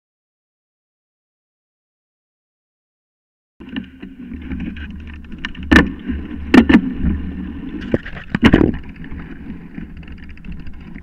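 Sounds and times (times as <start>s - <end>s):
bike knocking over bumps: 3.6s - 9.2s
bike tyres rumbling on dirt: 3.6s - 11.0s.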